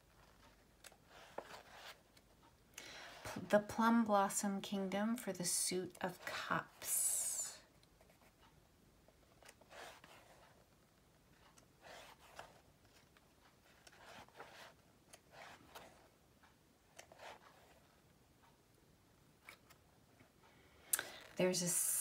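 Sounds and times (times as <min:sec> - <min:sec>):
paper pages turning: 0:11.4 - 0:16.0.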